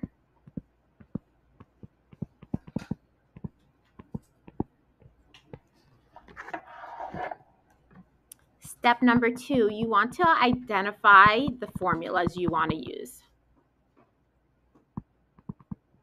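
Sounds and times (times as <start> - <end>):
stylus clicking on tablet screen: 0.0 - 5.7, 9.1 - 13.0, 13.6 - 16.0.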